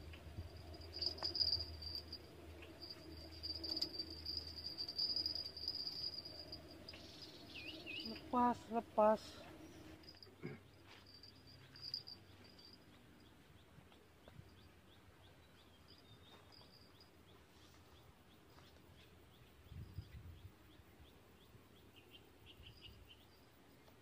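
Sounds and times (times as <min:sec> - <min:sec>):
bright bird calls: 0:06.9 - 0:08.4.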